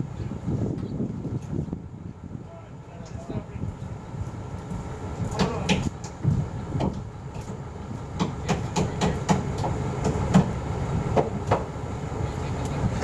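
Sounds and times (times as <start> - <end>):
crane engine rumbling: 0.0 - 13.0
sharp knocks on wood: 8.2 - 10.5.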